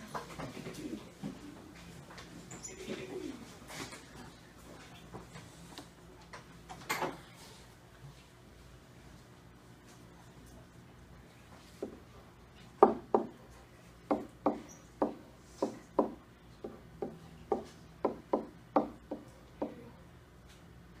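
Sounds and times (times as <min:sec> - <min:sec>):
sharp knocks on a hard surface: 0:12.8 - 0:13.4, 0:14.1 - 0:19.8.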